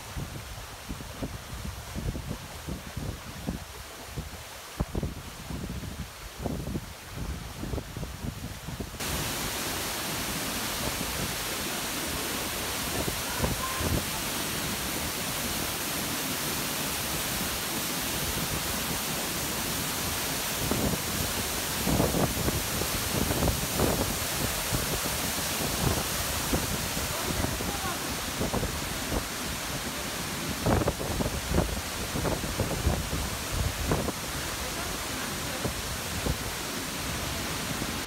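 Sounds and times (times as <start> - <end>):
waterfall rushing: 0.0 - 38.0
wind buffeting microphone: 20.6 - 29.7.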